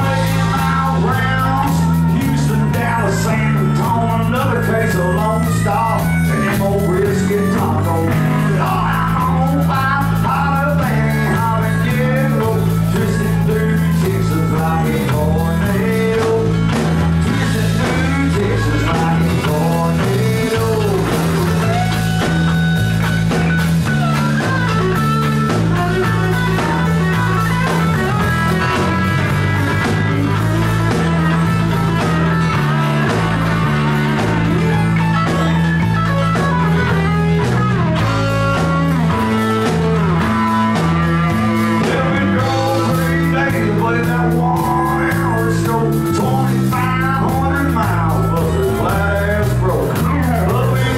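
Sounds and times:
bass line: 0.0 - 50.9
drums: 0.0 - 50.9
electric guitar: 0.0 - 50.9
live country band playing: 0.0 - 50.9.

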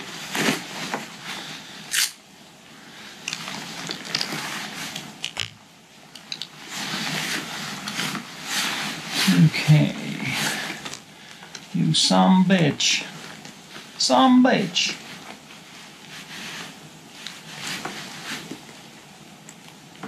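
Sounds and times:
rain jacket rustling: 0.0 - 2.1, 2.8 - 5.5, 6.3 - 11.5, 14.9 - 20.0.

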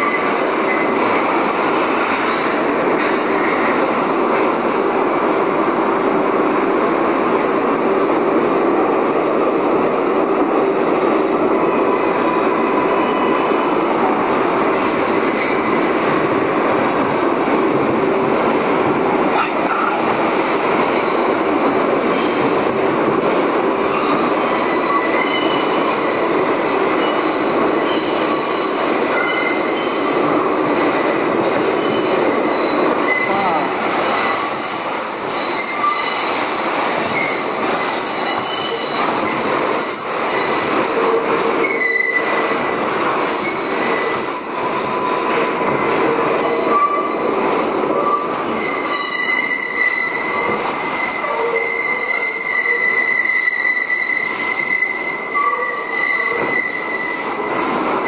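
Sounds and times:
train wheels rumbling on rail: 0.0 - 58.0
high-pitched wheel squeal: 41.4 - 45.3, 46.3 - 58.0.

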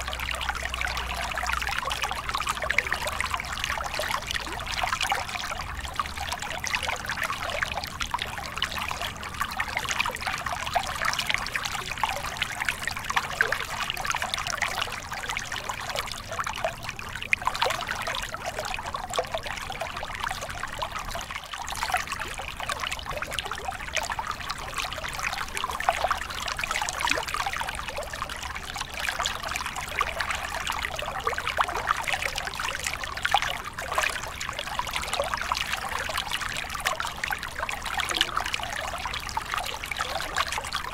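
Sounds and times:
stream babbling over rocks: 0.0 - 40.9.

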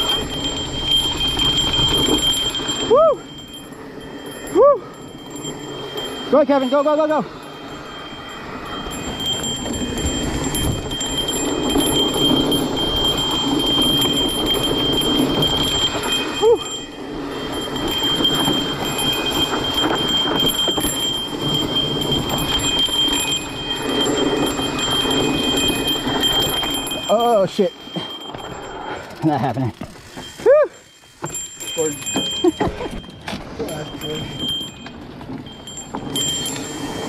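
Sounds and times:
mountain bike rattling: 0.0 - 37.0
tyres crunching over rocky trail: 17.0 - 37.0.

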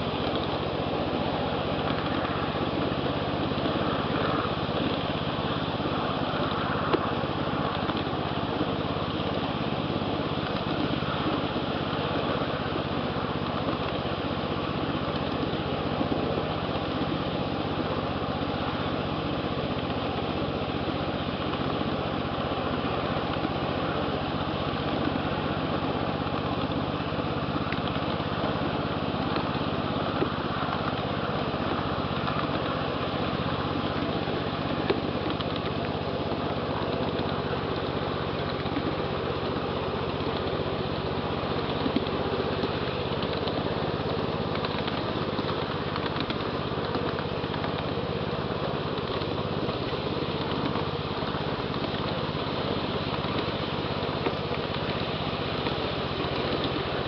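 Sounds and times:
small train engine running: 0.0 - 57.0
sharp clicks: 41.6 - 48.0.

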